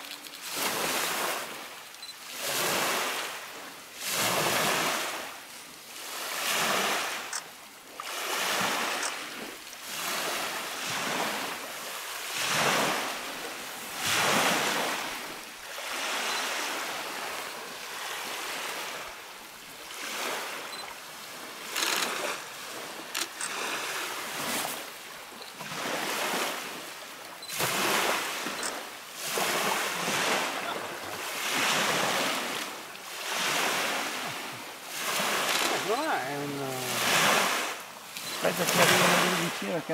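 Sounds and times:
waves washing onto gravel shore: 0.0 - 39.9.

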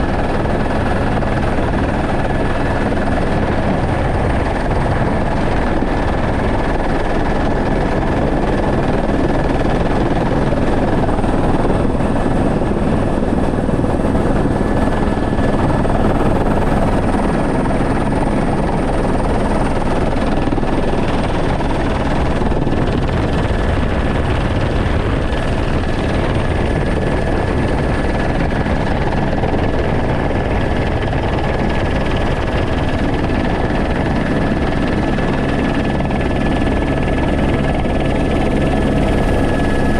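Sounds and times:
helicopter rotor and engine noise: 0.0 - 39.9.

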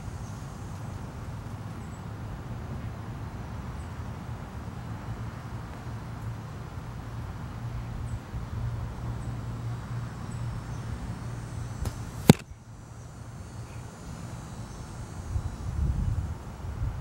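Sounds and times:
arrow striking target: 11.8 - 12.5
bow shot click: 11.8 - 12.5.

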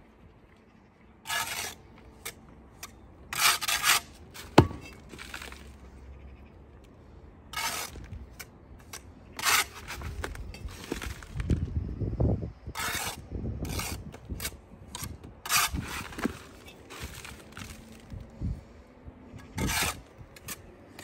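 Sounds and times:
trowel scraping mortar: 1.2 - 5.8, 7.5 - 11.4, 12.8 - 18.1, 19.4 - 21.0.

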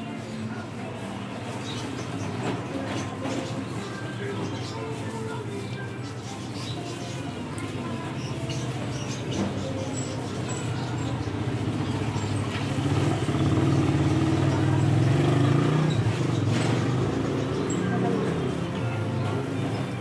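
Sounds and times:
vehicle engine running: 10.8 - 20.0.

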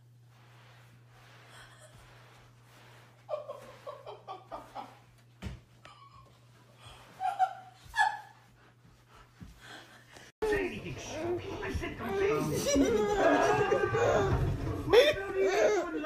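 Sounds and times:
person laughing: 3.3 - 5.0, 12.2 - 15.9.

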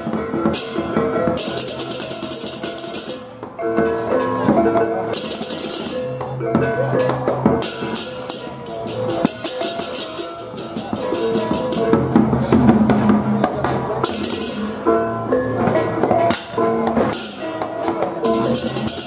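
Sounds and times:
drums: 0.0 - 19.0
hand cymbals clashing: 1.4 - 3.3, 5.1 - 6.2, 7.0 - 12.1, 14.0 - 14.9, 18.2 - 19.0.

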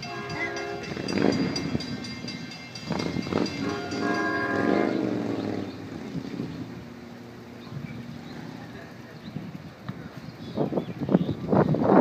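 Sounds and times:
fast regular ringing bell: 0.0 - 5.1
train horn chord: 0.0 - 6.8.

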